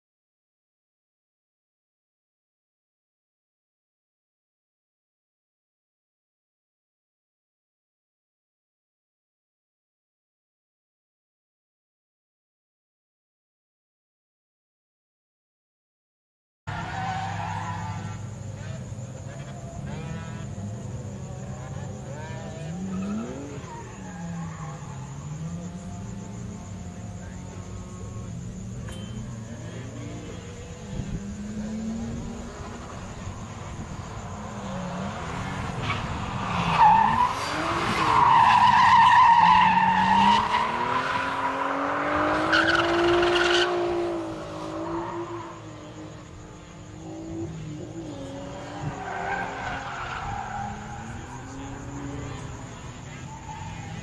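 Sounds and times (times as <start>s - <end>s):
tyre squeal: 16.7s - 20.7s, 22.1s - 25.5s, 32.5s - 43.8s, 48.0s - 54.0s
car engine revving: 17.3s - 38.4s, 39.2s - 53.2s.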